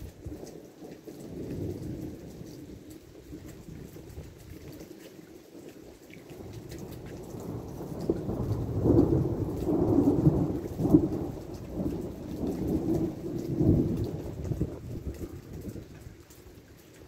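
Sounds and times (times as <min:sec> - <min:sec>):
falling rain: 0:00.0 - 0:17.0
thunder rumbling: 0:06.4 - 0:16.2.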